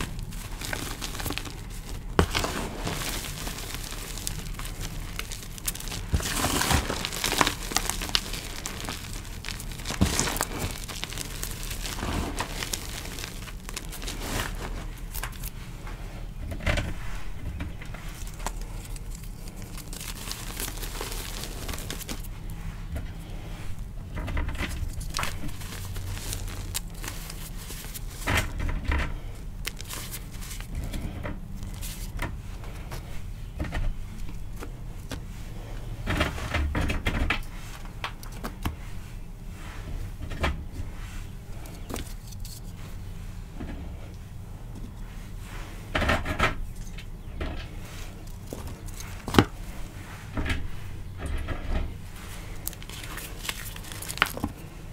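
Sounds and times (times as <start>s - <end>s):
hands crushing chalk: 0.0s - 15.6s, 17.0s - 22.6s, 24.5s - 33.1s, 52.0s - 54.8s.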